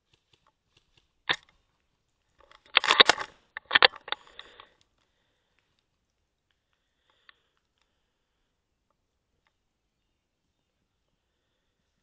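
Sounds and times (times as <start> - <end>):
airsoft rifle clicks: 0.0 - 1.6, 2.4 - 4.9.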